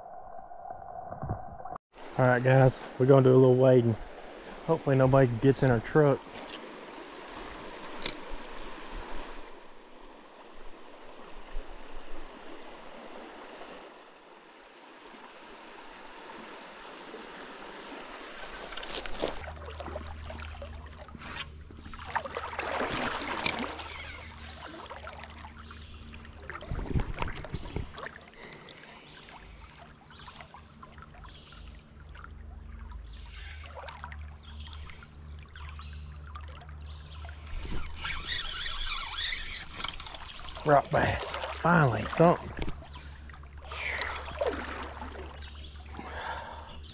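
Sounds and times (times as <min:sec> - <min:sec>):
creek water trickling: 0:02.0 - 0:46.9
person wading through water: 0:06.0 - 0:13.9, 0:14.8 - 0:46.9.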